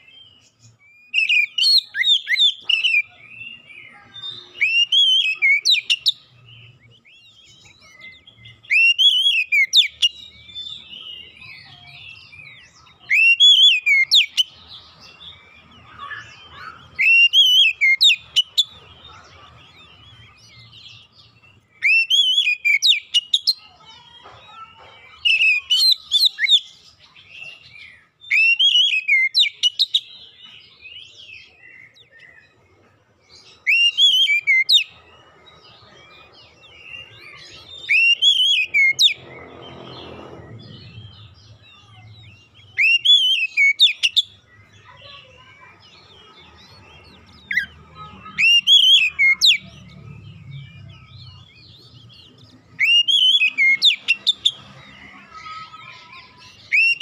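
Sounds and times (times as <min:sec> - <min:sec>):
bird whistled song phrases: 0:00.0 - 0:18.8, 0:19.9 - 0:23.6, 0:25.2 - 0:32.5, 0:33.5 - 0:35.0, 0:36.7 - 0:39.2, 0:41.0 - 0:45.8, 0:48.3 - 0:49.7, 0:52.7 - 0:54.6, 0:55.4 - 0:57.0
bird twittering: 0:00.6 - 0:24.6, 0:33.5 - 0:35.1, 0:35.8 - 0:57.0.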